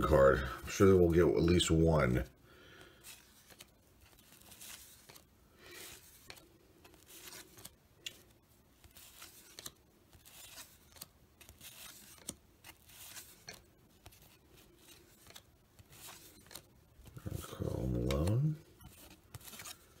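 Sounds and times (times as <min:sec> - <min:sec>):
cards swishing against each other: 0:02.9 - 0:20.0
light clicks of cards: 0:05.8 - 0:20.0.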